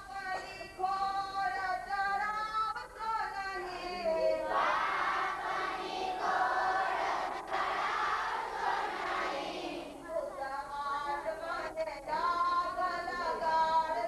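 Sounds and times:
children and women singing: 3.9s - 14.0s.

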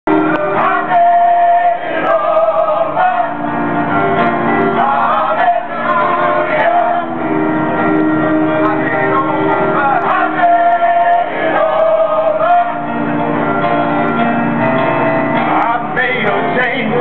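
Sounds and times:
held instrumental notes: 0.1s - 17.0s.

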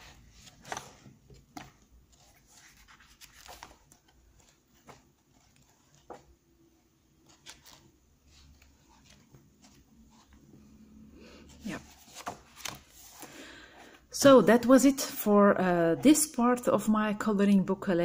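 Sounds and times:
book pages being turned: 0.0s - 10.7s, 11.5s - 13.4s.

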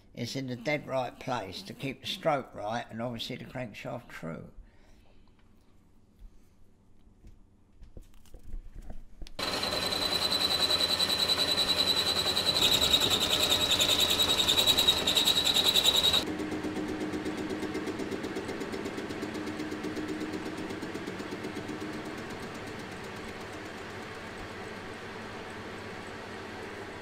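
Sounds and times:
machine tool whine and chatter: 0.3s - 2.8s, 9.4s - 27.0s
metal lathe humming: 9.4s - 16.3s.

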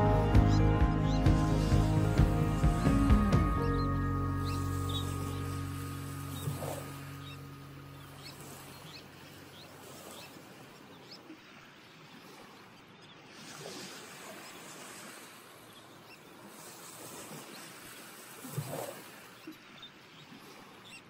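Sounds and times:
waves lapping on sand: 1.3s - 21.0s
faint bird chirps: 2.6s - 13.5s, 19.2s - 21.0s.

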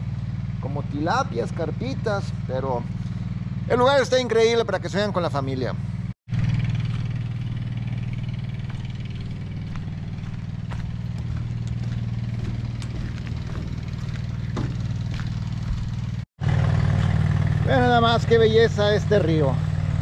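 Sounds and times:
pump motor humming: 6.7s - 17.6s.

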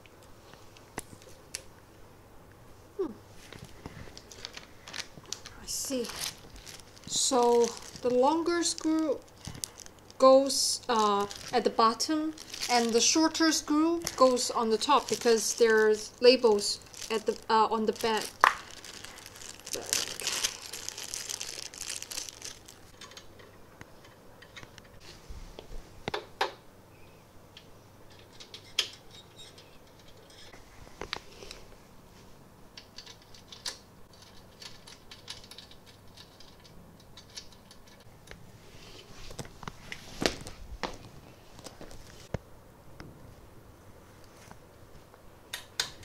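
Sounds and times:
plastic rustling: 3.4s - 23.2s
small parts clicking and tapping: 32.8s - 38.4s.

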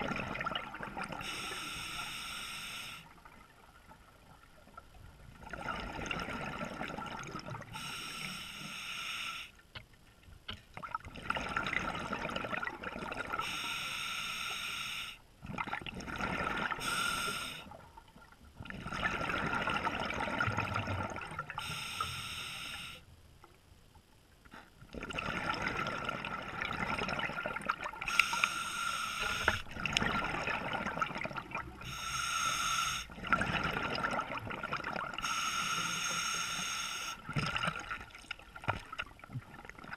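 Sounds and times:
exhaled bubbles rushing: 0.0s - 1.2s, 5.3s - 7.8s, 10.9s - 13.4s, 15.4s - 16.8s, 18.6s - 21.6s, 24.9s - 28.1s, 29.7s - 31.9s, 33.1s - 35.2s
regulator breathing hiss: 1.2s - 3.1s, 7.8s - 9.6s, 13.4s - 15.2s, 16.8s - 17.7s, 21.6s - 23.1s, 28.1s - 29.7s, 31.8s - 33.1s, 35.2s - 37.2s.

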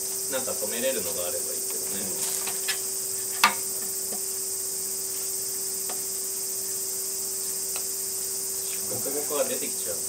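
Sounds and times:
cicadas buzzing: 0.0s - 10.0s.

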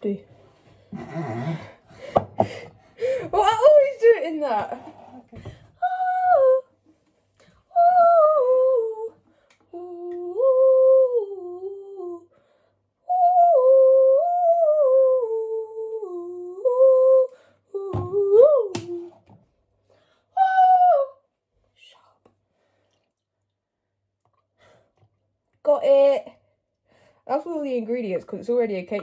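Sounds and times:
woman humming a tune: 7.8s - 12.3s, 13.1s - 19.2s.

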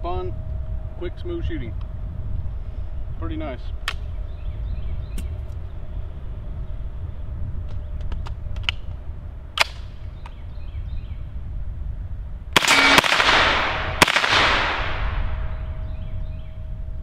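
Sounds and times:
gunshots echoing: 12.6s - 15.7s.

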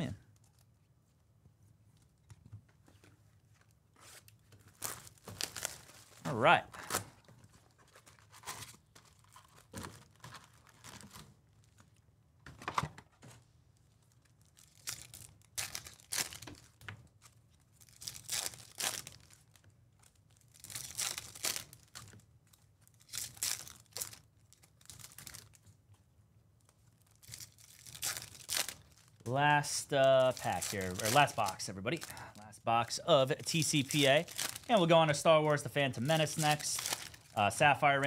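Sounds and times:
foil wrappers tearing and crinkling: 4.0s - 6.2s, 7.7s - 11.8s, 14.2s - 16.8s, 17.7s - 25.6s, 27.0s - 32.4s, 33.4s - 35.0s, 35.9s - 38.0s
cards being handled: 27.2s - 32.4s, 35.9s - 37.4s.

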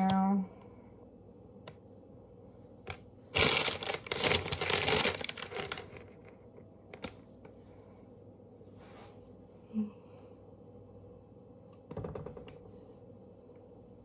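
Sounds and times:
packaging crinkling: 3.3s - 6.2s.

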